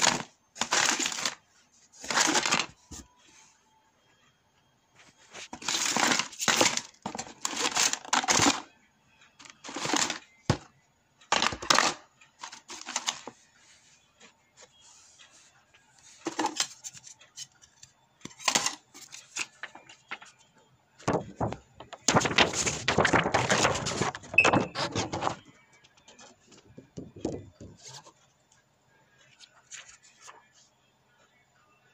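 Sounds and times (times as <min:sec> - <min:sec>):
phone parts rattling in a box: 0:00.0 - 0:01.4, 0:02.1 - 0:02.7, 0:05.5 - 0:08.6, 0:09.6 - 0:10.2.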